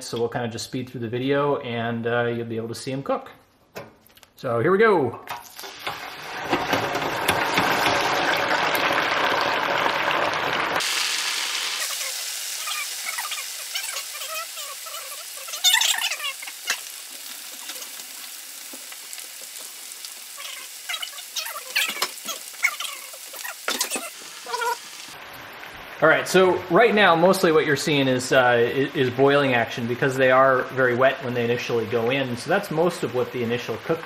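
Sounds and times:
potatoes sizzling in frying oil: 5.4s - 34.0s.

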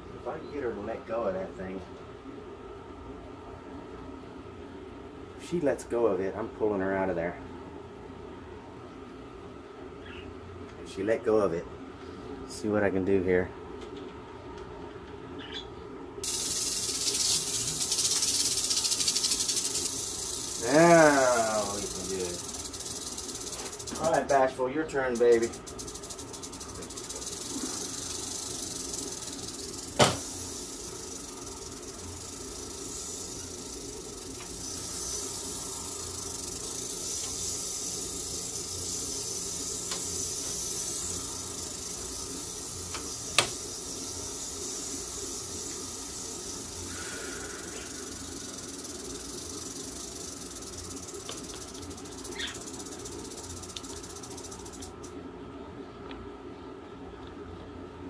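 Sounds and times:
rattlesnake rattling: 16.2s - 55.2s.

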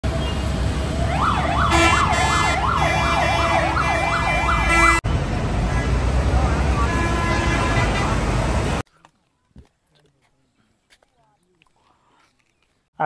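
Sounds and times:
heavy road traffic rumble: 0.0s - 8.9s
siren yelping: 0.9s - 5.0s
short horn blasts: 1.7s - 5.0s, 6.7s - 8.3s.

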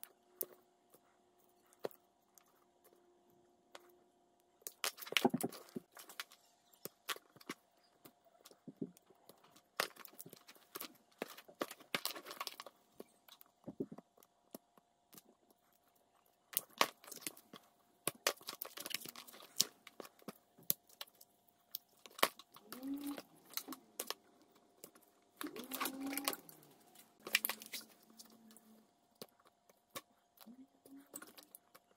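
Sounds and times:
tape crackling and tearing: 8.4s - 13.5s, 15.1s - 31.9s.

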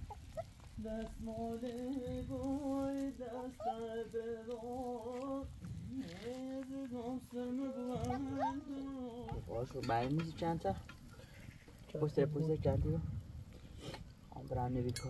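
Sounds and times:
person humming: 0.8s - 9.5s.

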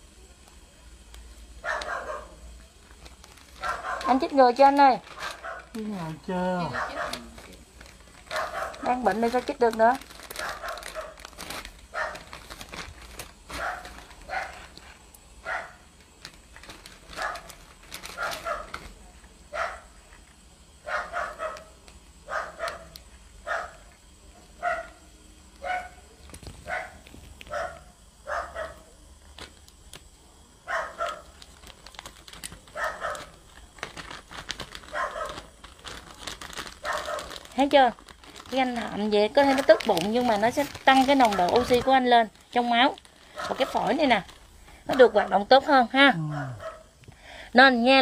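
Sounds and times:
dog barking: 1.6s - 2.4s, 3.6s - 4.2s, 5.2s - 5.7s, 6.6s - 7.3s, 8.3s - 8.9s, 10.4s - 11.2s, 11.9s - 12.3s, 13.5s - 14.6s, 15.4s - 15.8s, 17.2s - 17.5s, 18.2s - 18.8s, 19.5s - 19.9s, 20.8s - 23.9s, 24.6s - 25.0s, 25.6s - 26.0s, 26.6s - 28.8s, 30.7s - 31.3s, 32.7s - 33.3s, 34.9s - 35.5s, 36.8s - 37.4s, 46.3s - 46.9s.

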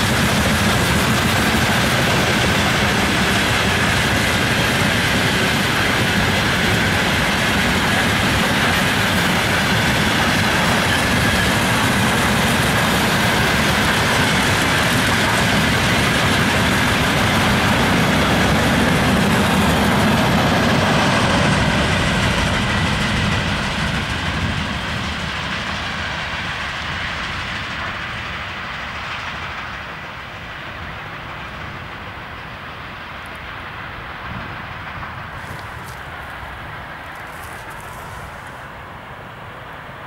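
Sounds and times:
freight train wheels on rails: 0.0s - 40.0s.

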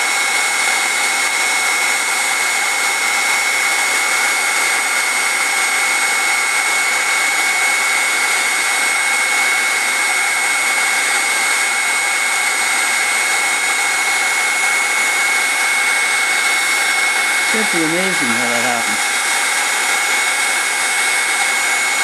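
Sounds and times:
heat gun blowing air: 0.0s - 22.0s.

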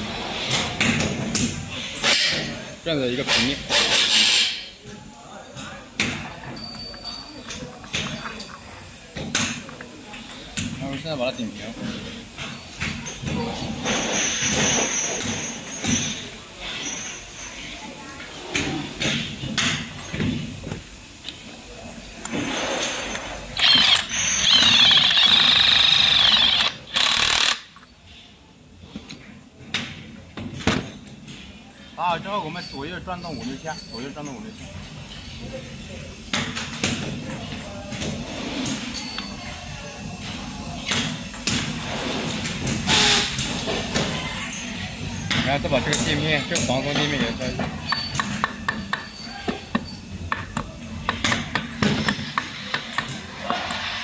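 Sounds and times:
light metallic clicks and clinks: 6.3s - 9.9s
power tool hammering: 23.6s - 27.7s.

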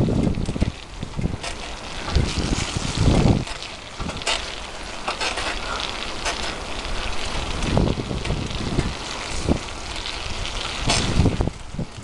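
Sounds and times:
bicycle tyres rolling on asphalt: 0.0s - 12.0s
wind buffeting microphone: 0.0s - 12.0s.

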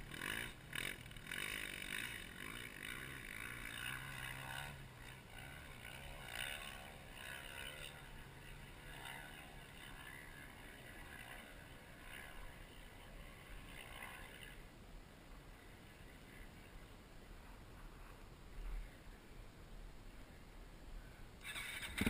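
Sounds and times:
distant engine revving: 0.0s - 14.6s
dirt bike engine idling: 0.0s - 22.0s.

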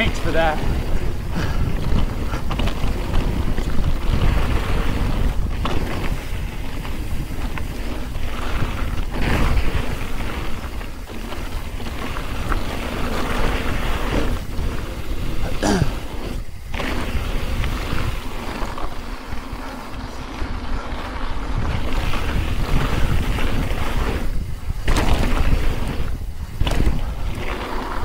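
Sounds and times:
bike rattling: 0.0s - 28.0s
bike tyres on dirt: 0.0s - 28.0s
wind noise on microphone: 0.0s - 28.0s
knocks from trail bumps: 0.7s - 7.9s, 24.8s - 27.6s.

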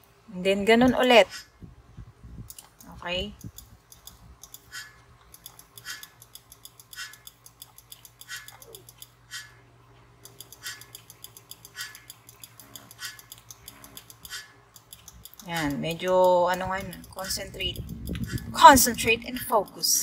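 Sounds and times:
low steady hum: 0.0s - 20.0s
crochet hook clicking: 2.5s - 9.2s, 10.2s - 20.0s.

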